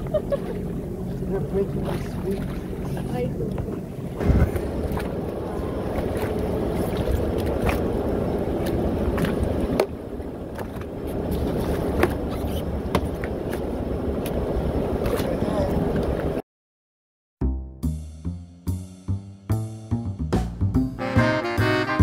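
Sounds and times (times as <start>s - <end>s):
low rumble of water and wind: 0.0s - 16.4s.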